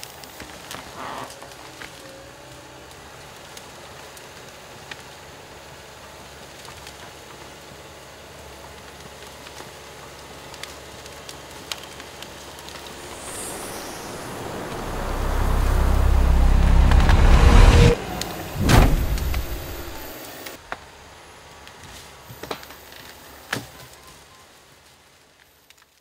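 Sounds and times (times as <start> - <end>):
diesel engine running: 12.8 - 20.6.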